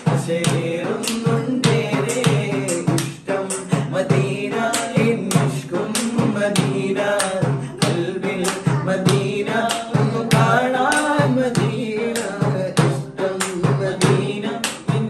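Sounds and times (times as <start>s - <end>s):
hand drum strikes: 0.0s - 15.0s
men singing devotional song: 0.0s - 15.0s.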